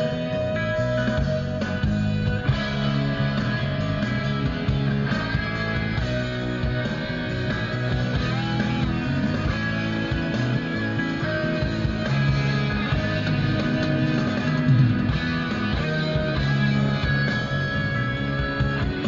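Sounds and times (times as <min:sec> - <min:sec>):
rock music with guitar: 0:00.0 - 0:19.0.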